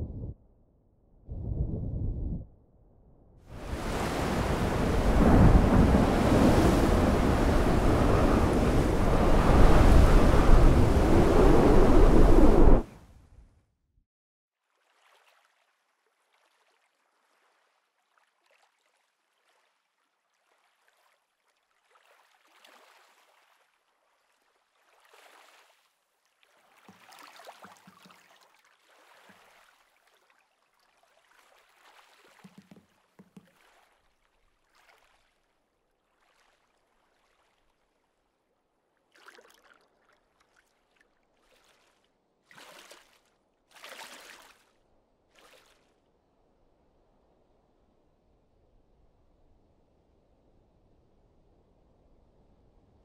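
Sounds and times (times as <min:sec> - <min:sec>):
brief low tones: 0:00.0 - 0:00.4
water lapping around boat: 0:14.6 - 0:38.3, 0:38.9 - 0:46.0.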